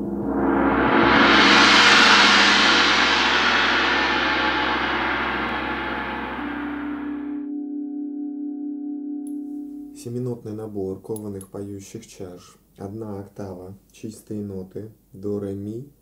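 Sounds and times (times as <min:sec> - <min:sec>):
gong: 0:00.0 - 0:10.0
singing bowl tone: 0:04.3 - 0:10.0.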